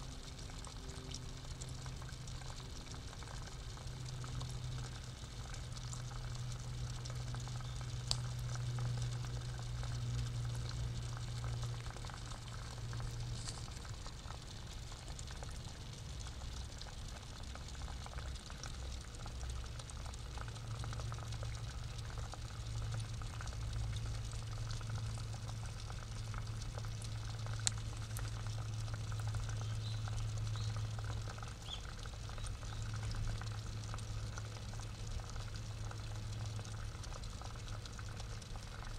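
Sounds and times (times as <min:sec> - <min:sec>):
steady low hum: 0:00.0 - 0:38.9
water bubbling and trickling: 0:00.0 - 0:38.9
faint clicks: 0:08.1 - 0:08.3.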